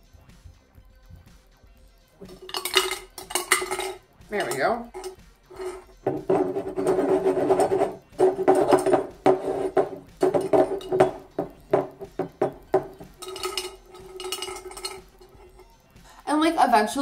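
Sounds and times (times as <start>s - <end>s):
glass jars clinking: 2.2s - 15.7s.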